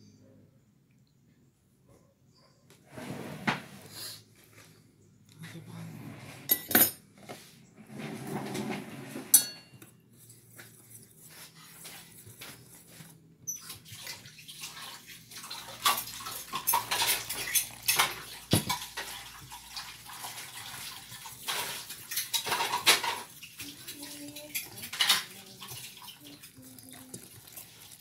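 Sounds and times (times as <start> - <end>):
utensil scraping metal bowl: 7.9 - 28.0.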